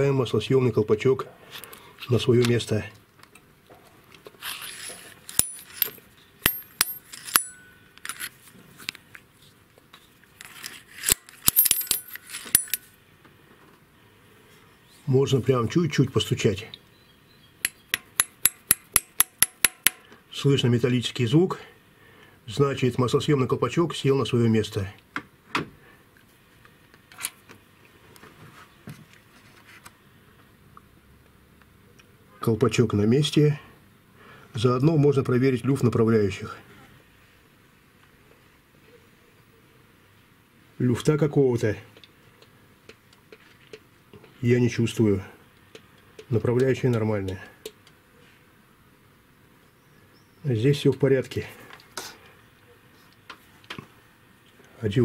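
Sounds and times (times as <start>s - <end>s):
metal scraping: 4.4s - 8.4s
metal tool clinking on valve: 5.3s - 8.3s, 11.4s - 12.9s.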